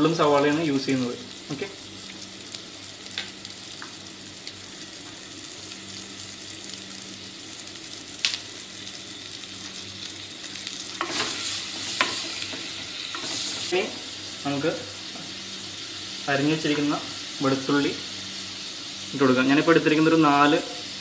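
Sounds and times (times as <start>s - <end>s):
onions sizzling in oil: 0.0s - 21.0s
sharp crackle: 1.5s - 13.8s.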